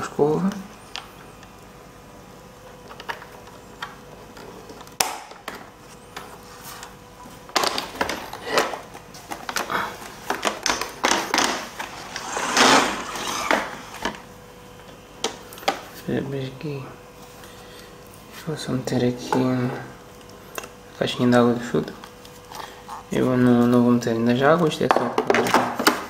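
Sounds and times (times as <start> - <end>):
scraping rustle: 11.6 - 14.1.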